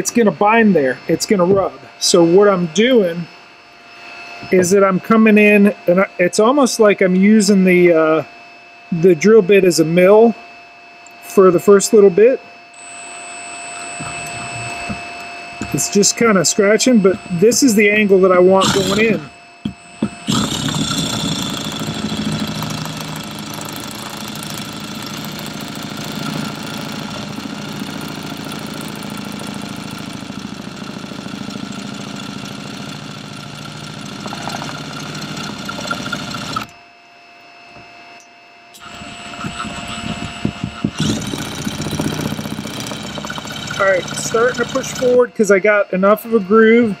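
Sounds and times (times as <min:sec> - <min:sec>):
power drill grinding plastic: 0:17.7 - 0:36.8, 0:38.8 - 0:45.3.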